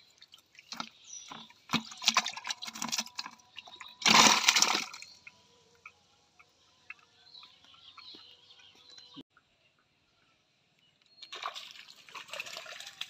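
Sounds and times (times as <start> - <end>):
water splashing in a bucket: 0.0 - 5.3, 11.2 - 13.0.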